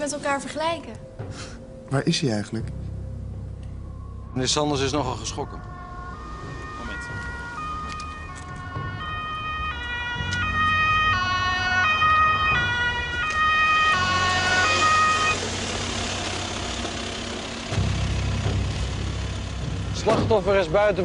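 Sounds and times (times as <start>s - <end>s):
ambulance two-tone siren: 3.4s - 18.4s
vehicle engine running: 12.4s - 21.0s.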